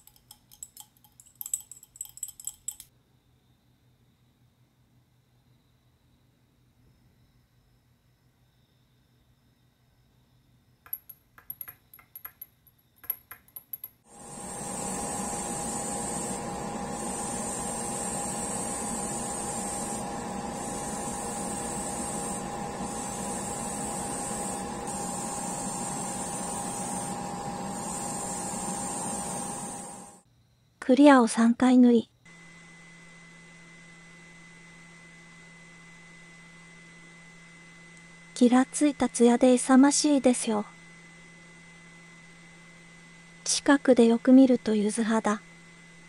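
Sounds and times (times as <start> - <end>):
metal rods clinking on glass jar: 0.0 - 2.9
machine hum: 13.1 - 30.2, 40.6 - 46.0
airbrush spraying hiss: 14.1 - 30.1.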